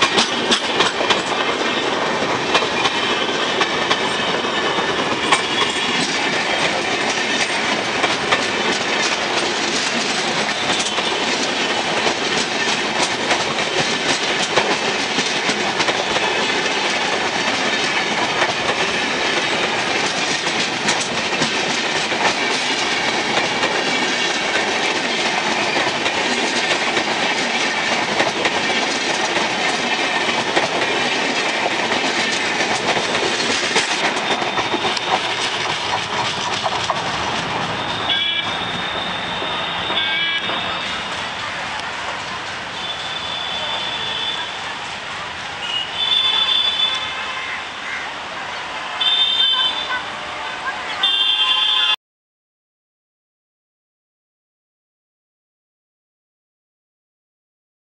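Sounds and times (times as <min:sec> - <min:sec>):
train wheels clattering over rail joints: 0:00.0 - 0:44.3
rush of passing train: 0:00.0 - 0:52.0.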